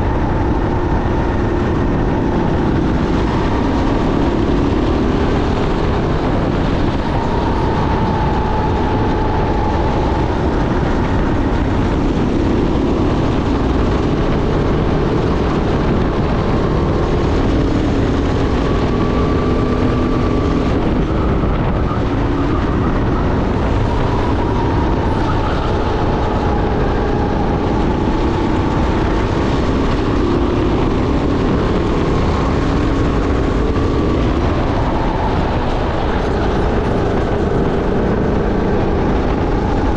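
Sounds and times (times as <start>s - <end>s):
kart engine racing: 0.0s - 39.9s
track noise: 0.0s - 39.9s
wind noise: 0.0s - 39.9s.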